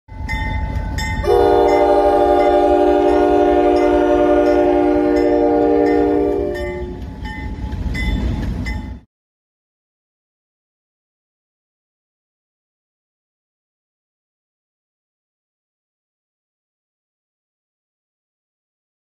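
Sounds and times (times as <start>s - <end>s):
low rumble of train: 0.1s - 9.1s
locomotive air horn blast: 1.2s - 7.0s.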